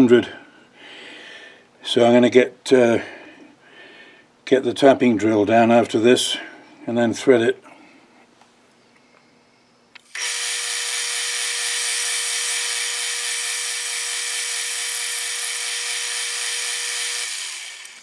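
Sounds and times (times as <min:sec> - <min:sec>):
drill boring into steel: 0:10.0 - 0:18.0.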